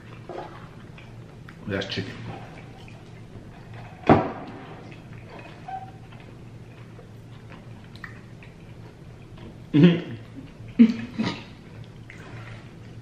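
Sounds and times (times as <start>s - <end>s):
quiet chewing: 6.1s - 12.2s.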